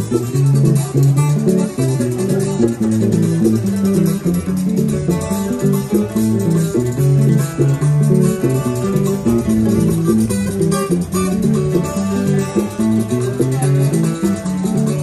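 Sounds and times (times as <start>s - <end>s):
guitar bass line: 0.0s - 15.0s
percussion: 0.0s - 15.0s
plucked cuatro notes: 0.0s - 15.0s.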